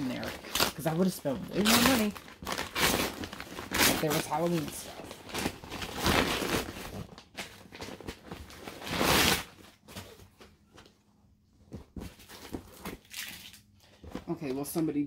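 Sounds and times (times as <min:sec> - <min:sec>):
paper mailer rustling: 0:00.0 - 0:08.9.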